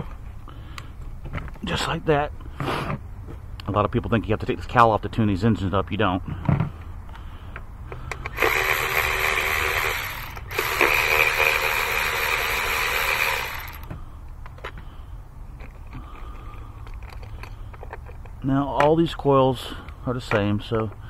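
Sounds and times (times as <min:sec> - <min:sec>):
electric ratchet running: 0:08.3 - 0:13.9.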